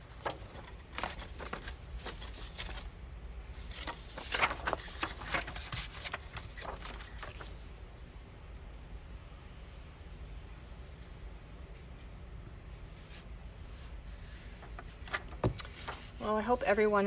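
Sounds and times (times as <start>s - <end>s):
paper rustling and tapping: 0.1s - 2.9s, 3.7s - 7.5s, 14.6s - 16.1s.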